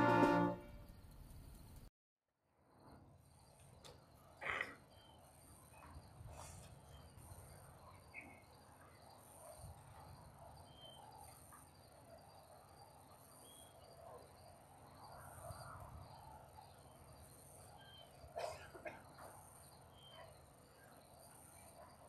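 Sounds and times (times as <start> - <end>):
insect trilling: 4.4 - 9.6.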